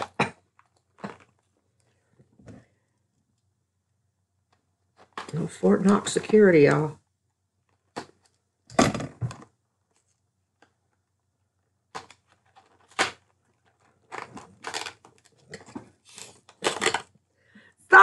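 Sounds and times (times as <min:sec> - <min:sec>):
packaging rustling and tearing: 0:12.0 - 0:17.1.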